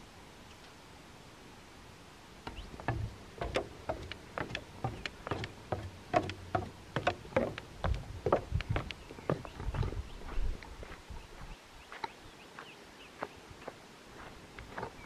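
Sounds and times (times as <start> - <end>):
footsteps on wooden stairs: 2.5 - 11.0.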